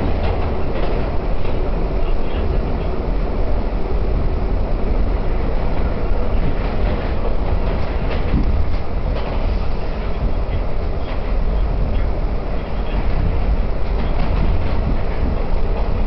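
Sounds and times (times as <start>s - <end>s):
steel wheels rumbling on rail: 0.0s - 16.0s
sharp track clicks: 5.7s - 16.0s.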